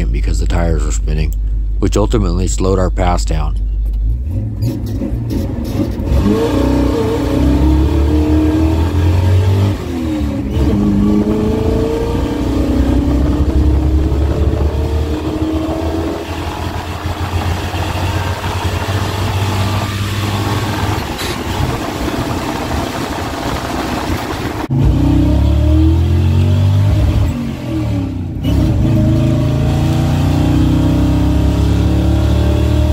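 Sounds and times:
gear change: 3.5 - 25.5
truck engine at full throttle: 5.3 - 32.9.

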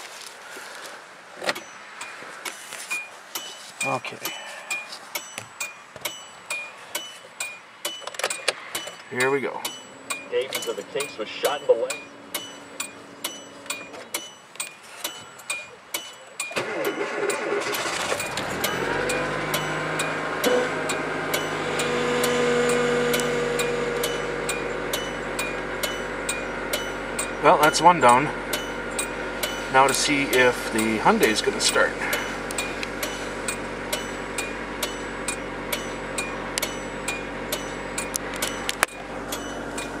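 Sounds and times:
ticking chime: 2.9 - 40.0
engine starter cranking: 3.3 - 40.0
car engine fast idle: 16.5 - 40.0.

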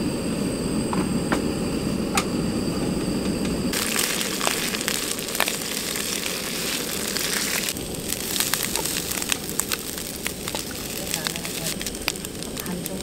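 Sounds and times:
onions sizzling in hot oil: 3.7 - 13.0.

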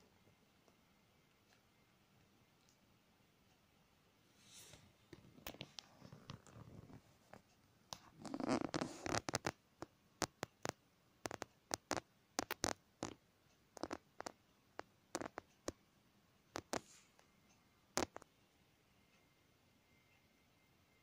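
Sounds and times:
claws clicking and scratching: 5.1 - 13.2, 13.8 - 15.8, 16.5 - 17.2, 18.0 - 18.3.

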